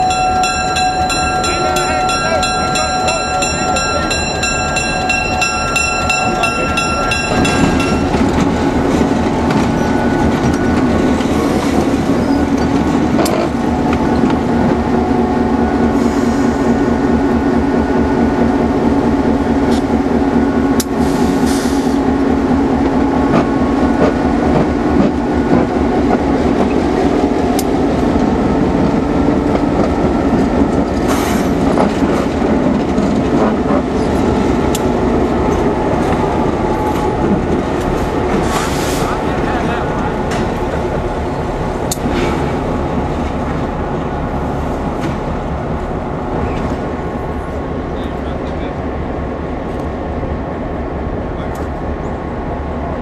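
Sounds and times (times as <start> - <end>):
high ringing: 0.0 - 9.2
diesel locomotive engine drone: 0.0 - 53.0.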